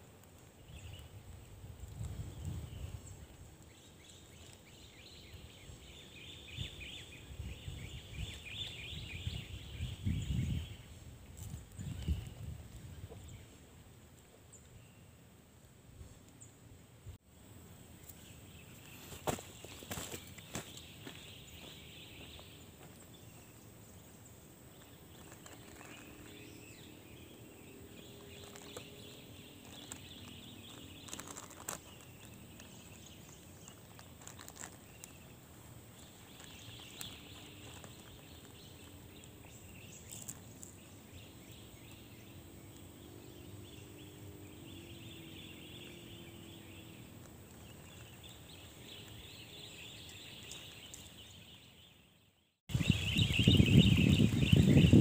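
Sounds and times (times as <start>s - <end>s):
low steady hiss: 0.0s - 55.0s
soft clicks and rustles: 29.6s - 35.3s.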